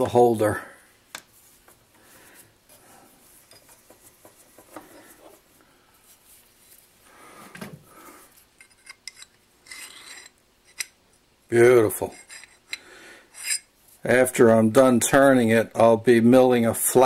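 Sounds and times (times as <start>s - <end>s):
metal shaft handling clinks: 8.6s - 11.0s, 13.4s - 13.7s.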